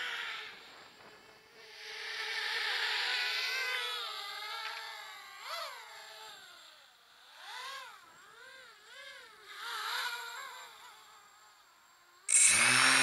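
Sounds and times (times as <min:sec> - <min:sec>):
quadcopter motors whining: 0:00.0 - 0:13.0.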